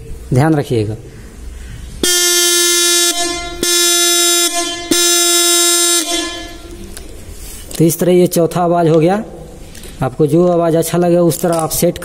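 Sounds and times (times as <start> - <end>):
electric motorcycle horn blasts: 2.0 - 7.0.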